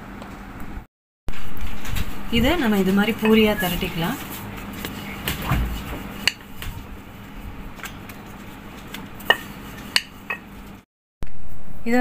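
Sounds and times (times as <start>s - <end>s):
rolling pin rolling dough: 2.4s - 10.8s.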